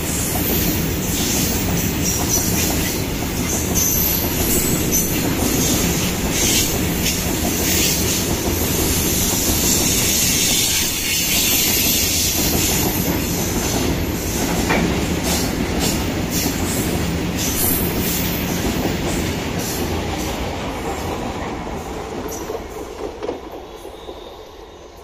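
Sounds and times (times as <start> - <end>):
freight train wheels clacking: 0.0 - 24.3.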